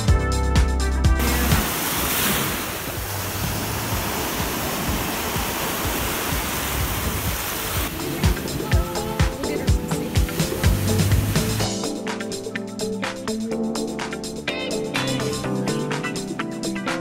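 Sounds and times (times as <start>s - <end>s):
upbeat dance music: 0.0s - 2.2s, 3.9s - 17.0s
ocean waves breaking on shore: 1.2s - 12.1s.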